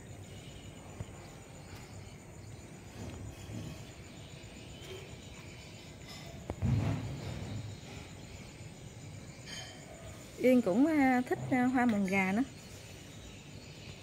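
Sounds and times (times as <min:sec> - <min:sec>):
high insect trill: 0:00.0 - 0:14.0.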